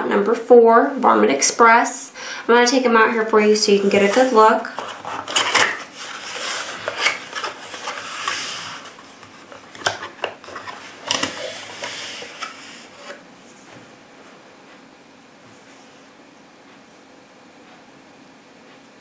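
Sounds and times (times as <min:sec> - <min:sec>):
cardboard flaps rustling: 0:03.8 - 0:13.8.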